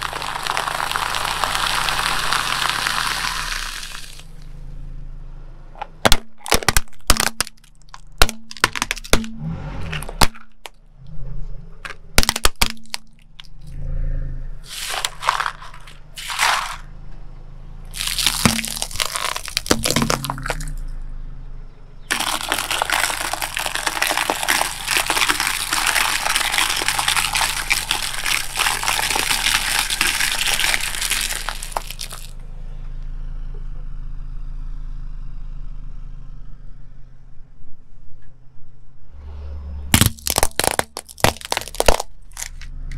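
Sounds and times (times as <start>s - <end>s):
eggs cracking and crunching: 0.0s - 4.4s, 6.1s - 9.4s, 11.8s - 13.6s, 14.7s - 16.9s, 17.9s - 20.8s, 22.1s - 32.3s, 40.0s - 42.7s
objects crunching under car tyre: 0.0s - 4.6s, 5.8s - 13.7s, 14.6s - 17.0s, 17.9s - 21.0s, 22.0s - 32.4s, 39.9s - 42.9s.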